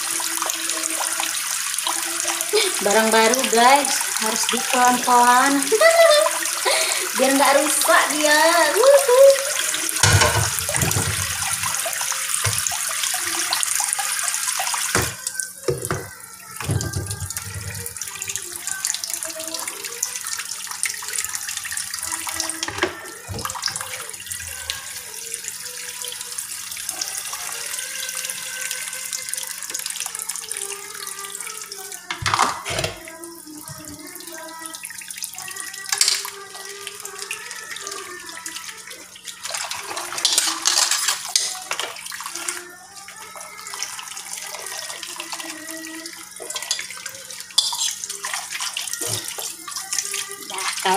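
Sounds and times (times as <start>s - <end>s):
tap running into sink: 9.8s - 13.4s, 14.9s - 18.0s, 22.5s - 23.9s, 32.0s - 34.1s, 35.9s - 36.4s
cookware knocking against sink: 10.0s - 11.8s, 14.9s - 17.8s.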